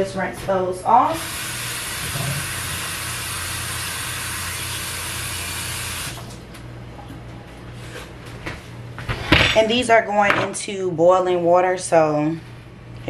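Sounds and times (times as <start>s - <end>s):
kitchen tap running: 1.1s - 6.4s.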